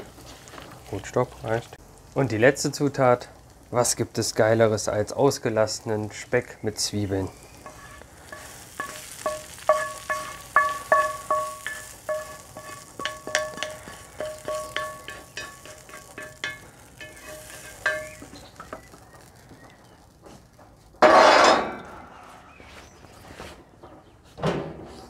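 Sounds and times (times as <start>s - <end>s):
hot fat crackling: 0.0s - 23.0s
spatula knocking metal bowl: 8.4s - 18.2s.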